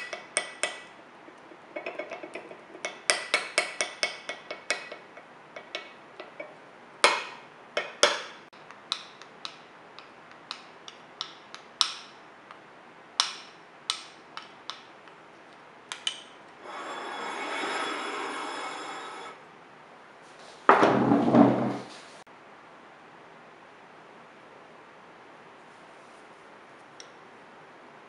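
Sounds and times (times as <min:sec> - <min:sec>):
bowl scraping rub: 0:16.6 - 0:19.4.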